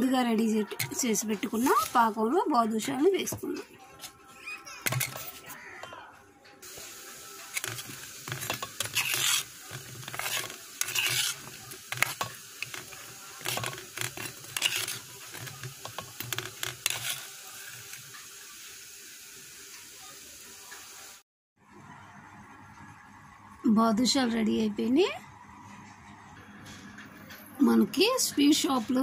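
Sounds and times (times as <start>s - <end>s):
metal spoon scraping a pan: 0.6s - 2.1s, 7.5s - 18.0s.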